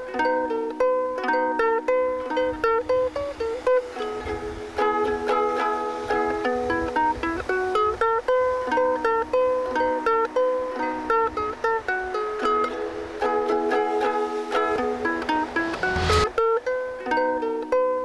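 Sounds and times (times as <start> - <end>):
ukulele playing: 0.0 - 18.0.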